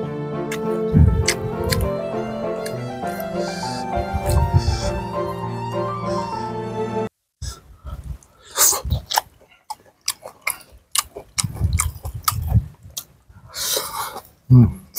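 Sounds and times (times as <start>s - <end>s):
background music: 0.0s - 7.1s
wet mouth clicks and smacks: 0.5s - 1.9s
person chewing food: 0.5s - 2.0s, 2.6s - 5.1s, 8.2s - 14.4s.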